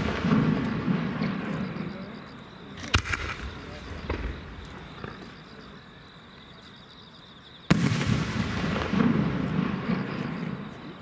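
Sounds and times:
rumbling and crackling: 2.8s - 5.6s.

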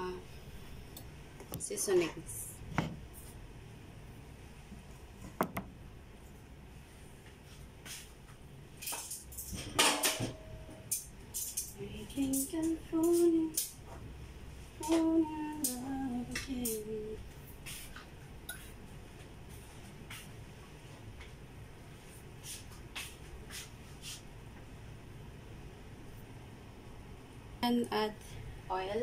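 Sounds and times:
utensils and dishes clinking: 8.8s - 12.7s
woman singing: 11.8s - 13.6s, 14.8s - 17.2s.

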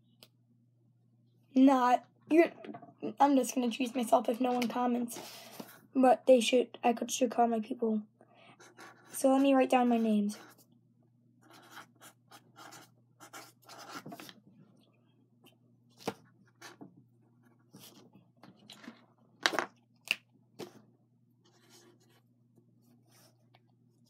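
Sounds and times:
pen writing on paper: 11.5s - 14.2s.

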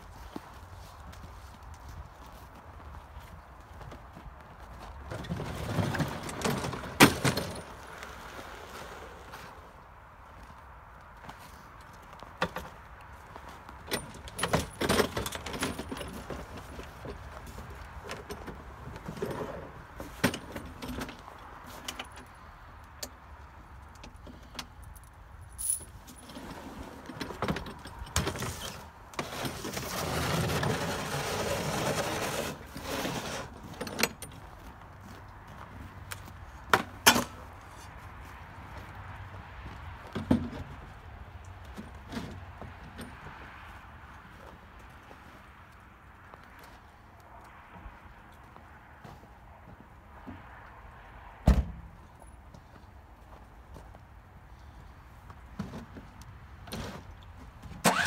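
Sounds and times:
plastic sled scraping: 5.0s - 9.7s, 28.2s - 33.9s
metal hitch clinking and rattling: 5.1s - 8.0s, 13.8s - 17.4s, 24.4s - 28.9s.

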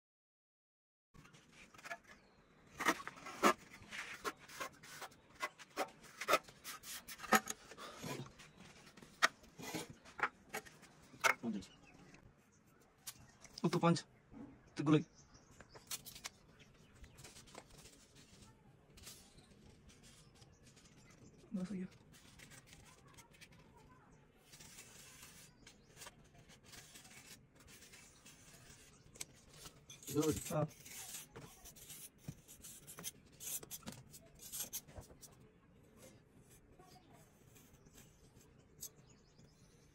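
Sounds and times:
cardboard scraping on plaster: 1.4s - 10.9s, 17.2s - 35.3s
hand tool scraping plaster: 24.5s - 35.2s.

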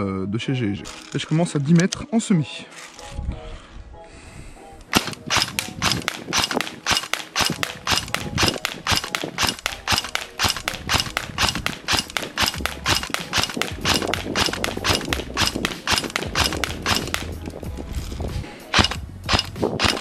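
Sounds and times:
airsoft gun shots: 4.9s - 17.4s, 18.7s - 20.0s.

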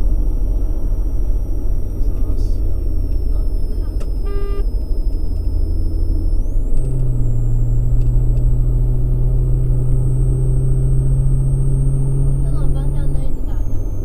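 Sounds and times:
droning engine hum: 0.0s - 14.0s
road noise inside car: 0.0s - 14.0s
short electronic beep: 3.2s - 7.8s.

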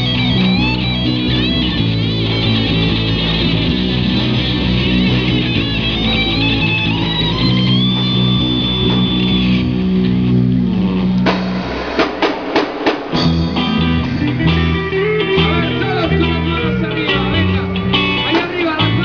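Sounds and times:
rock band playing: 0.0s - 19.0s
sharp drum hits: 11.2s - 14.6s.

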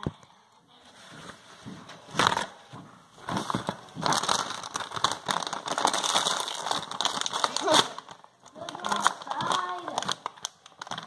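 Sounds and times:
crunching and crinkling: 3.2s - 11.0s.

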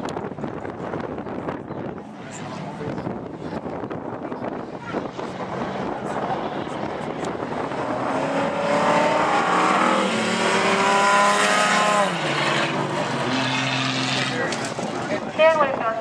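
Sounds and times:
tyres rumbling on dirt: 2.6s - 15.7s
race car engine passing: 4.8s - 15.3s.

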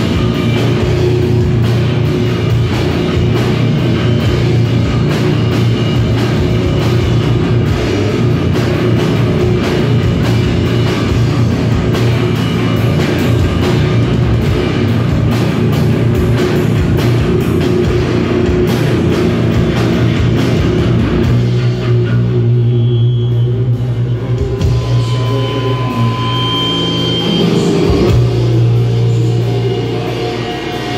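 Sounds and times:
distorted electric guitar: 0.0s - 30.9s
drum kit: 0.0s - 30.9s.

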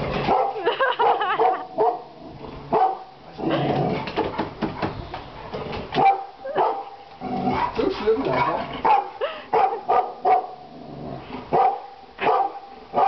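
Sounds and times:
dog barking: 0.3s - 2.1s, 2.7s - 3.2s, 6.0s - 7.0s, 8.8s - 10.6s, 11.5s - 13.0s.

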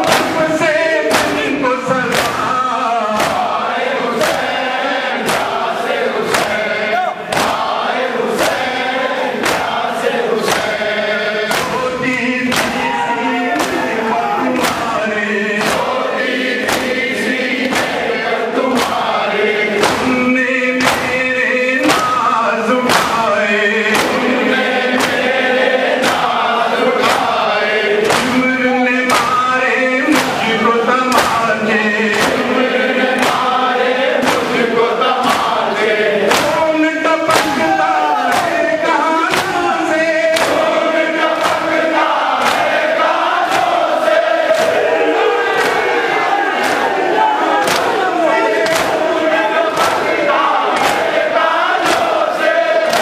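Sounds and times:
man chanting into microphone: 0.0s - 4.2s, 18.6s - 24.9s, 26.1s - 42.0s
crowd of men chanting: 0.0s - 53.0s
rhythmic chest-beating slaps: 0.0s - 53.0s.

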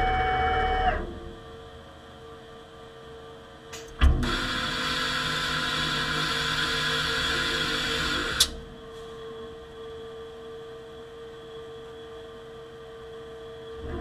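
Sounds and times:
mechanical whir: 0.0s - 1.8s, 3.8s - 8.8s, 13.4s - 14.0s
low machine hum: 0.0s - 14.0s.

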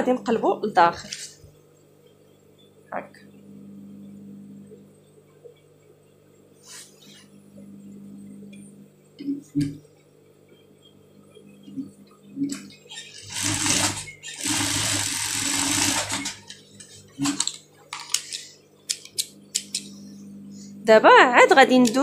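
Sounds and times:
sewing machine motor humming: 12.5s - 16.6s
sewing machine stitching: 13.0s - 16.5s.

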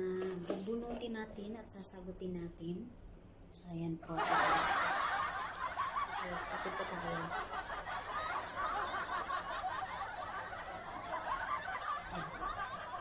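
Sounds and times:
snickering laughter: 4.2s - 13.0s.

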